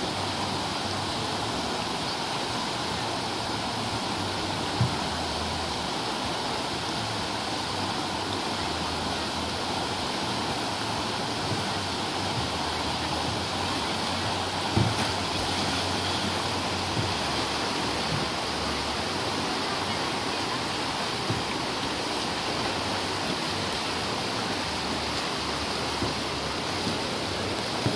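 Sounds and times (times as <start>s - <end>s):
whitewater rushing over weir: 0.0s - 27.9s
low thump: 14.6s - 15.7s.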